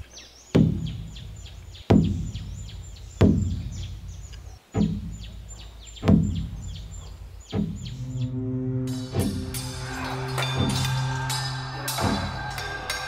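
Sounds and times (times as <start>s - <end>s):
birds chirping: 0.0s - 13.0s
large drum booming: 6.0s - 8.2s.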